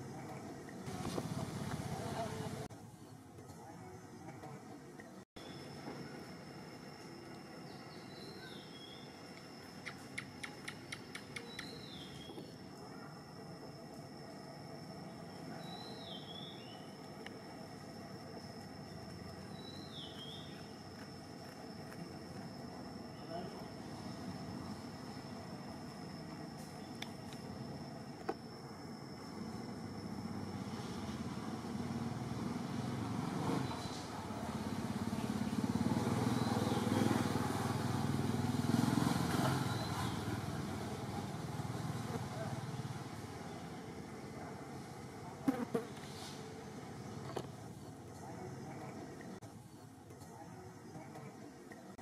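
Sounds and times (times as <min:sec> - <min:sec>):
vehicle engine rumble: 0:00.0 - 0:02.7
sharp bird chips: 0:09.7 - 0:12.4.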